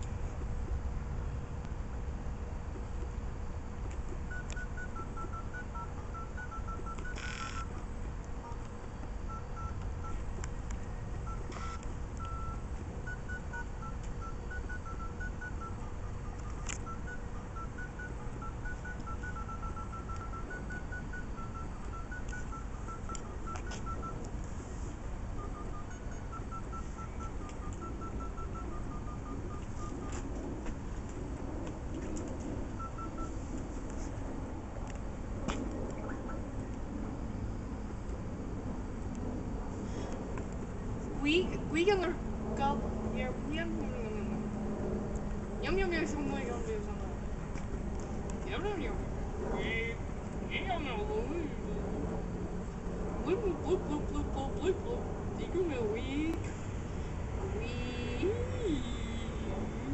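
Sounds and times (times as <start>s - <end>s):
low background rumble: 0.0s - 59.9s
phone keypad beeps: 4.3s - 7.8s, 8.9s - 10.3s, 11.2s - 24.3s, 25.3s - 30.2s, 32.8s - 33.4s.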